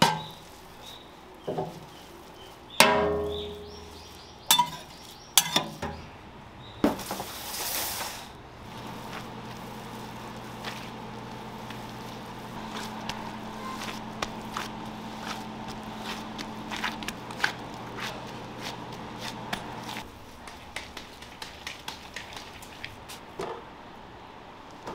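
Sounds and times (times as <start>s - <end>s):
electrical hum: 8.2s - 20.6s
hands patting ground meat: 8.7s - 23.1s.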